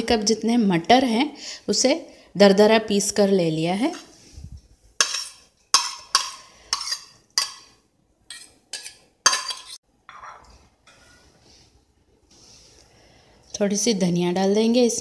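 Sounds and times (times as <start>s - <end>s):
metal spoon clinking on bowl: 8.3s - 11.2s.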